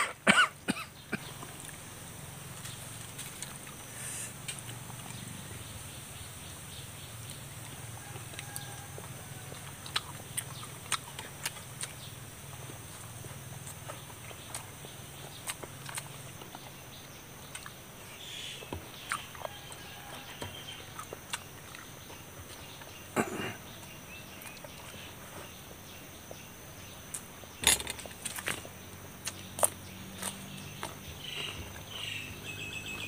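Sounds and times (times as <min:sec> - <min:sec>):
chewing and food handling clicks: 0:08.2 - 0:16.8, 0:17.4 - 0:17.8, 0:27.9 - 0:31.6.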